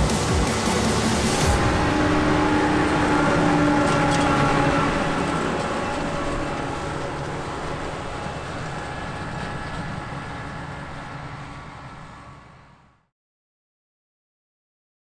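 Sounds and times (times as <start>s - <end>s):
combine harvester engine rumbling: 0.0s - 13.0s.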